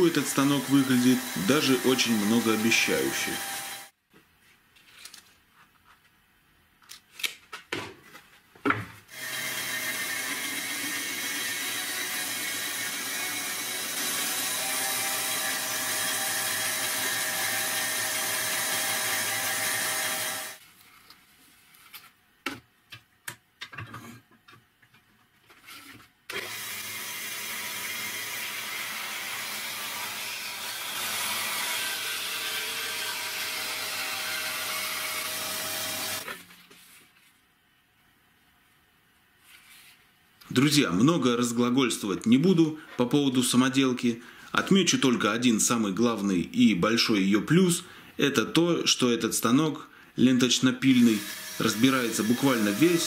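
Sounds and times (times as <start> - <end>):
band saw cutting chipboard: 0.0 - 3.9, 9.1 - 20.6, 26.3 - 36.3, 50.8 - 53.0
band saw cutting plastic pipe: 0.0 - 3.9, 9.1 - 20.6, 26.3 - 36.4, 50.8 - 53.0.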